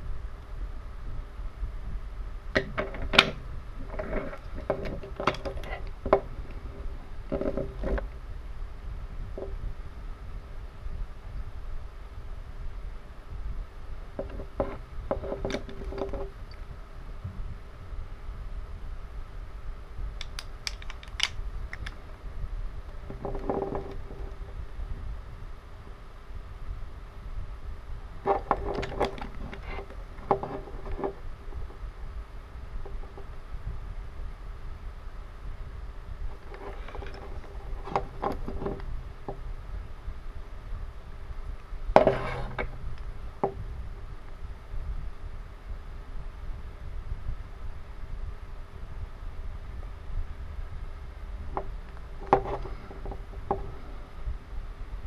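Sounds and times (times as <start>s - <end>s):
wooden toy trains clicking: 20.2s - 22.0s.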